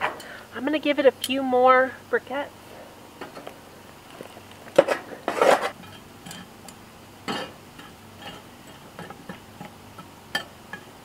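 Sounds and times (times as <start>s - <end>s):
tongs clinking on charcoal: 0.0s - 0.4s, 1.2s - 1.4s, 5.7s - 11.0s.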